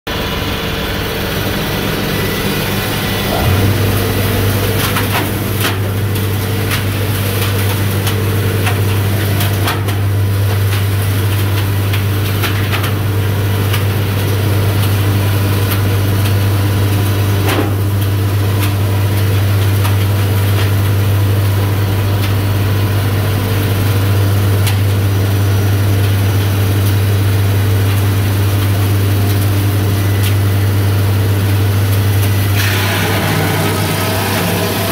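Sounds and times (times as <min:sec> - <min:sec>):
machine humming: 0:00.1 - 0:17.0.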